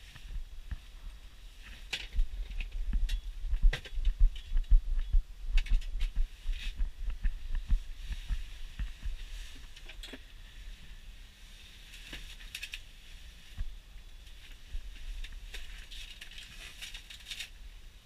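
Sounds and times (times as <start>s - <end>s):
low thumps and knocks: 2.2s - 9.3s.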